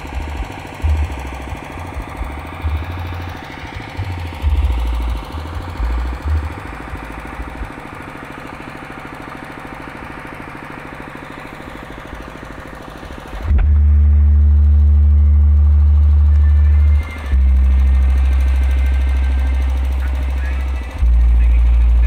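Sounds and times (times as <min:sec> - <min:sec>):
small engine idling: 0:00.0 - 0:22.0.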